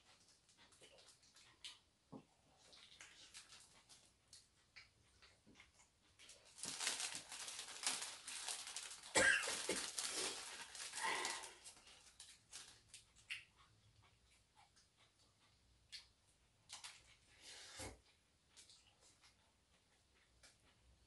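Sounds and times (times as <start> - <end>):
plastic wrappers crinkling: 3.0 - 4.0, 6.2 - 13.1.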